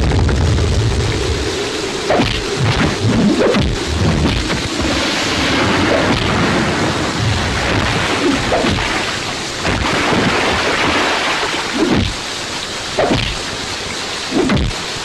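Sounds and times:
low rumbling booms and thuds: 0.0s - 11.1s
heavy rain falling: 0.0s - 15.0s.

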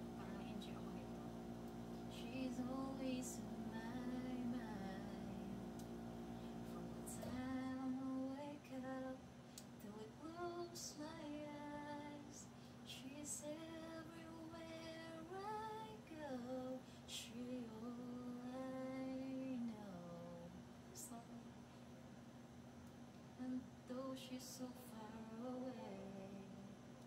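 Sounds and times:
woman singing into a microphone: 2.1s - 5.6s, 6.7s - 9.2s, 23.4s - 26.5s.

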